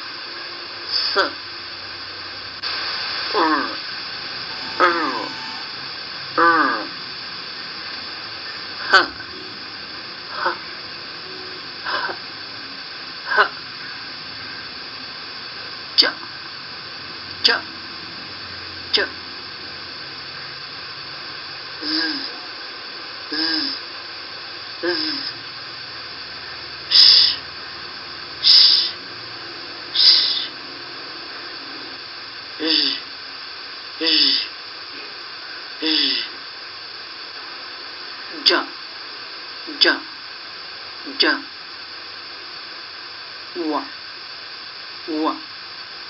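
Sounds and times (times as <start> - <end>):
background hiss: 0.0 - 46.0
person saying sh: 3.4 - 6.8, 21.8 - 22.4, 23.3 - 23.8, 24.8 - 25.4, 32.6 - 33.0, 34.0 - 34.5, 35.8 - 36.3
woman pronouncing consonant sounds: 4.4 - 5.8.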